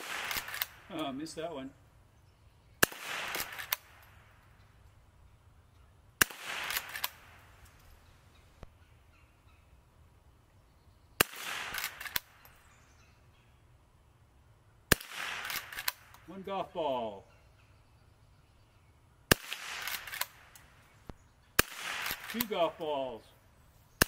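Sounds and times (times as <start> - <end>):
rifle shots: 0.0 - 1.2, 2.8 - 4.4, 6.2 - 7.6, 11.2 - 12.4, 14.9 - 16.2, 19.3 - 20.8, 21.6 - 23.1.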